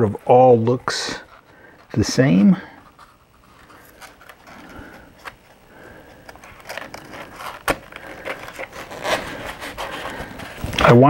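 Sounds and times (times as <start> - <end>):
foam rubbing and scraping: 8.2 - 11.0.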